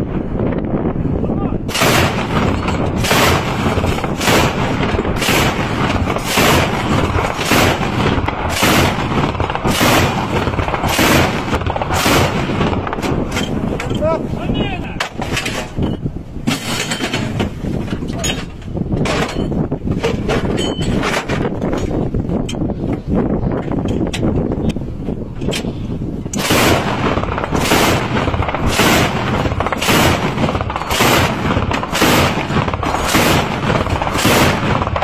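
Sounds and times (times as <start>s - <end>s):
anti-aircraft gun firing bursts: 1.7s - 13.8s, 26.4s - 35.0s.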